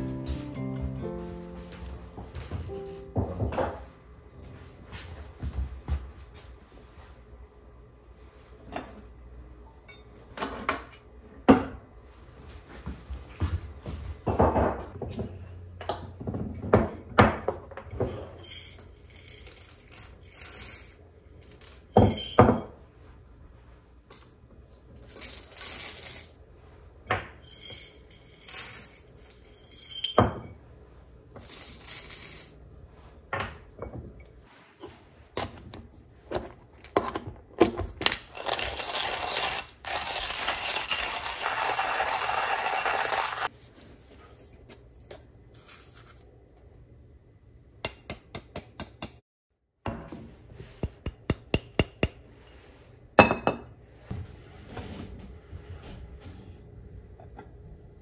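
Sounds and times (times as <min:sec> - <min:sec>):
kitchenware clinking on wood: 0:03.2 - 0:03.9, 0:09.8 - 0:11.8, 0:14.3 - 0:21.0, 0:21.6 - 0:22.8, 0:27.0 - 0:30.6, 0:53.2 - 0:53.7.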